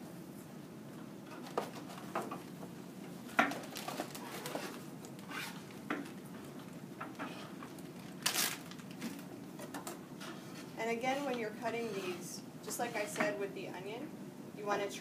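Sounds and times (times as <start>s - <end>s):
plastic bag crinkling: 3.5s - 5.8s, 7.7s - 9.4s.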